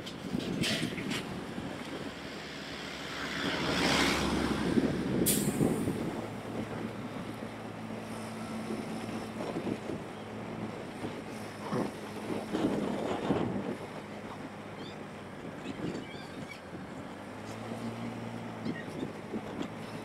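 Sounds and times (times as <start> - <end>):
passing vehicle: 0.0 - 20.0
wind on microphone: 3.4 - 17.1, 18.6 - 20.0.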